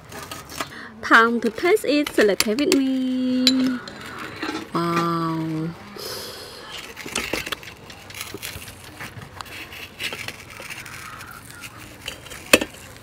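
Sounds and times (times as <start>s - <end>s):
metal spoon scraping clam shell: 9.4s - 13.0s.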